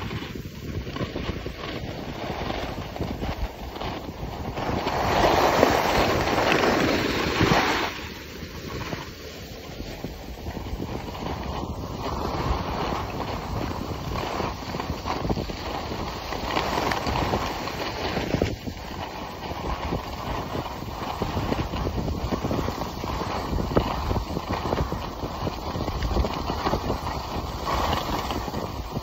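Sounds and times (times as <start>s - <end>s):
skis scraping over snow: 0.0s - 29.0s
wind on microphone: 0.0s - 29.0s.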